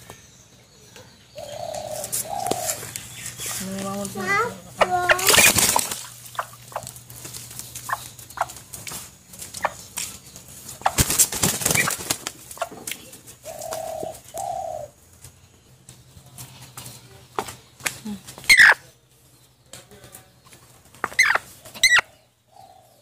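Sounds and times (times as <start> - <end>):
hen calling: 1.3 - 8.8, 12.6 - 15.0, 18.0 - 19.0.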